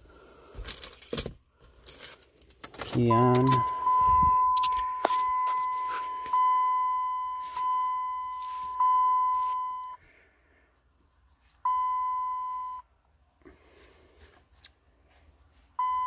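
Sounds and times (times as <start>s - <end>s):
dashboard warning chime: 2.9s - 10.0s, 11.6s - 12.9s, 15.8s - 16.0s.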